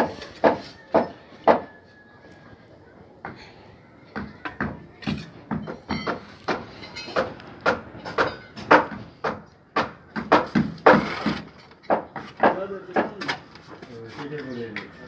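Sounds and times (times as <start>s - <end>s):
steel trowel knocking on bricks: 10.2s - 13.3s.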